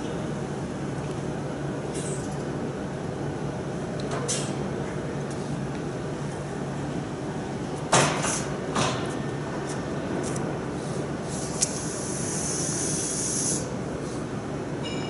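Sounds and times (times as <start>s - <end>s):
factory machinery hum: 0.0s - 15.0s
pneumatic bursts: 11.2s - 13.7s.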